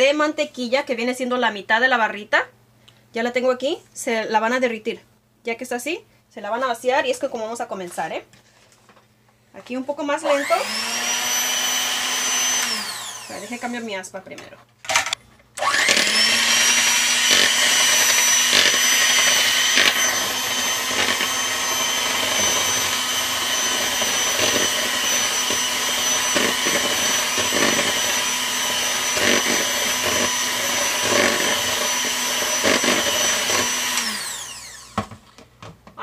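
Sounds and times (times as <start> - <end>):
electric hand mixer whining: 10.2 - 13.9, 15.6 - 35.2
mixer clicks: 14.9 - 35.0.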